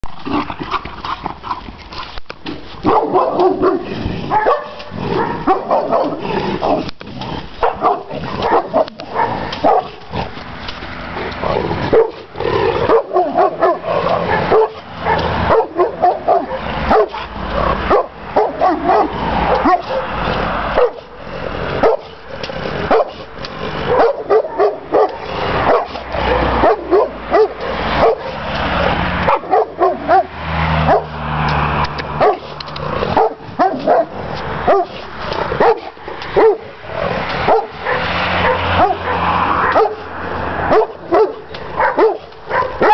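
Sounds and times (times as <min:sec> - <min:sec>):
dog barking: 0:02.8 - 0:06.8, 0:07.6 - 0:10.0, 0:11.9 - 0:12.2, 0:12.8 - 0:21.1, 0:21.8 - 0:22.2, 0:22.9 - 0:23.2, 0:23.8 - 0:28.4, 0:29.2 - 0:31.2, 0:32.1 - 0:32.5, 0:33.1 - 0:35.0, 0:35.6 - 0:36.8, 0:37.4 - 0:42.9.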